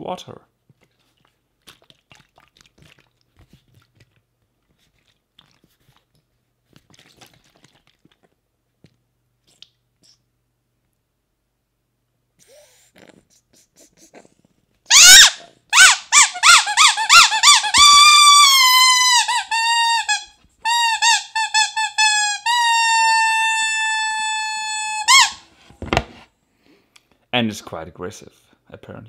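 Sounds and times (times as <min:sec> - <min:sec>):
rubber duck squeaking: 0:14.9 - 0:25.5.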